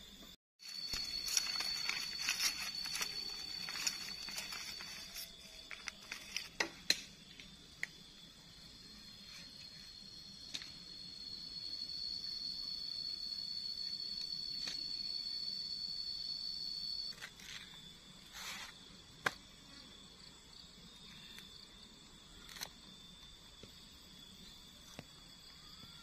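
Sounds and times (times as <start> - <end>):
high insect drone: 0.0 - 26.0
plastic bags crinkling: 0.7 - 6.5.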